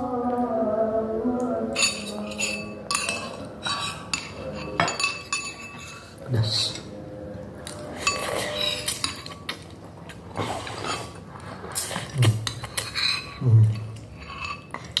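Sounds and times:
cutlery clinking on ceramic bowls: 1.7 - 6.9, 7.9 - 9.7, 11.9 - 15.0.

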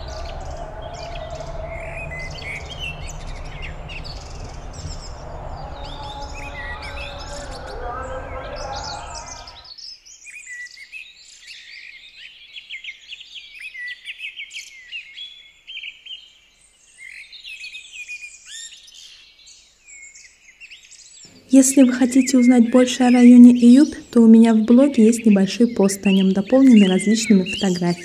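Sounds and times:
low mechanical hum and rumble: 0.0 - 9.6
songbirds chirping and singing: 0.0 - 9.6, 21.4 - 28.0.

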